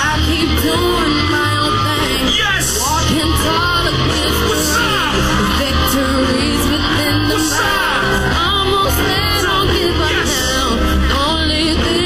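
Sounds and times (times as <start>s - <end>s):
pop song with singing: 0.0s - 12.0s.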